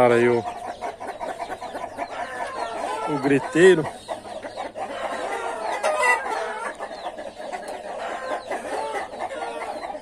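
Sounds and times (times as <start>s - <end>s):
chickens clucking and squawking: 0.0s - 10.0s.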